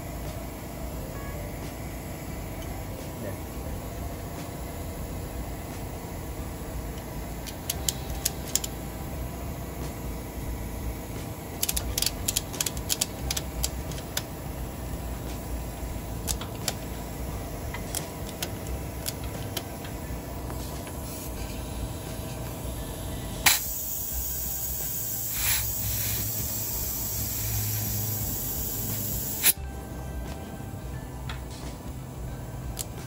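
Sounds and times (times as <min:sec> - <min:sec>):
steady low hum: 0:00.0 - 0:33.0
ratchet strap clicking: 0:07.4 - 0:08.8, 0:11.6 - 0:14.3, 0:25.3 - 0:29.6.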